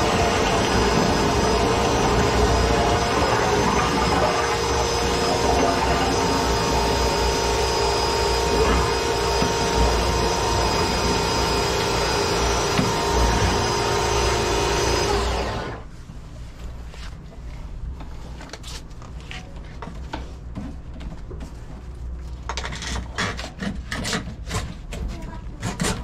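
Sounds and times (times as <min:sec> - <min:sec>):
cordless drill whining: 0:00.0 - 0:15.8.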